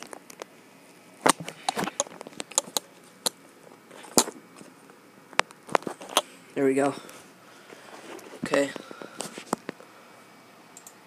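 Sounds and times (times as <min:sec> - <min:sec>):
keyboard and mouse clicking: 0:10.8 - 0:11.0.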